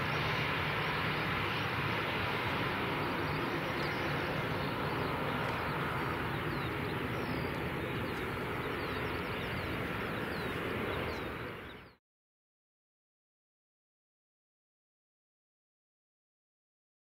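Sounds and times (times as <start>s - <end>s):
jet engines idling: 0.0s - 12.0s.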